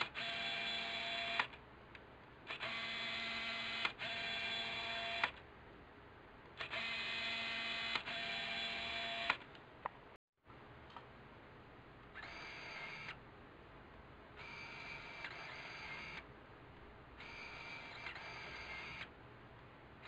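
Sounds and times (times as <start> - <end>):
lens autofocus whir: 0.0 - 1.6, 2.5 - 5.4, 6.6 - 9.5, 12.1 - 13.2, 14.4 - 16.3, 17.2 - 19.1.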